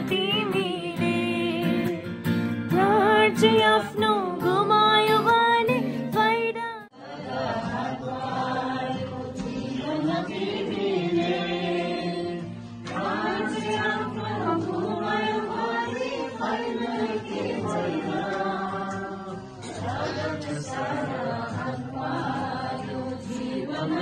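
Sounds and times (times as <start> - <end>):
group singing a hymn: 6.9 - 24.0.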